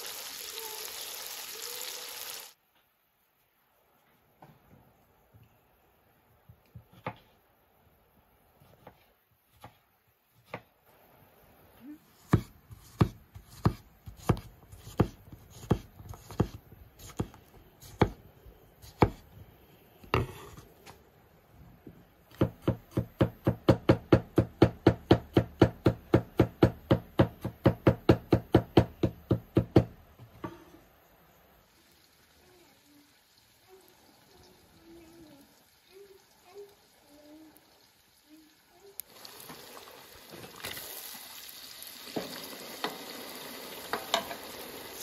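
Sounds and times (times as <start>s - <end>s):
knife chopping on wooden board: 12.2s - 18.2s, 18.8s - 19.2s.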